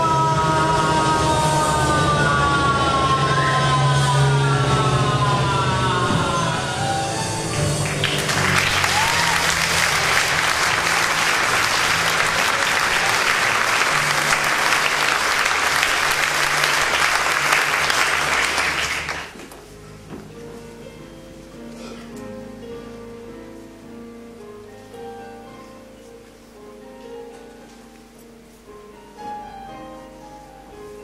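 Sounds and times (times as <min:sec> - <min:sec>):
audience applauding loudly: 0:07.3 - 0:19.5.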